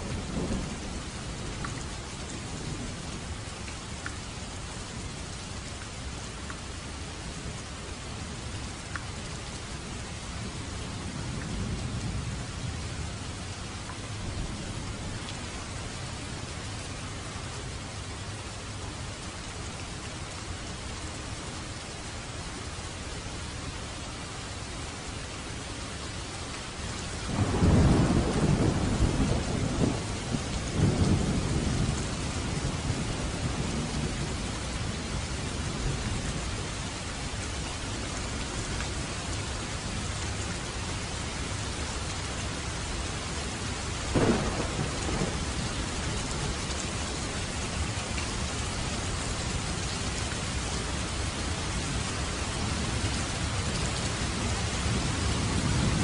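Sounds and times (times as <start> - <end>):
heavy rain falling: 0.0 - 56.0
thunder rumbling: 27.3 - 35.2, 44.1 - 50.6, 51.2 - 56.0
sharp thunder crack: 44.1 - 45.5.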